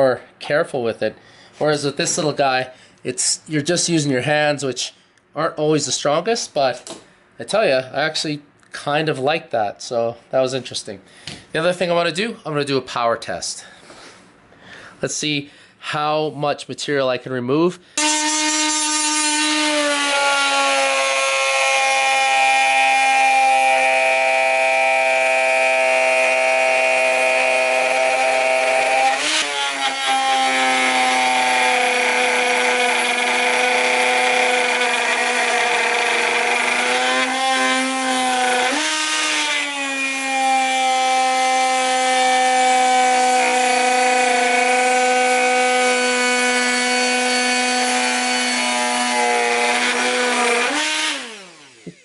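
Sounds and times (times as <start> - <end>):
die grinder whining: 18.0 - 52.0
rasp cutting wood: 18.0 - 52.0.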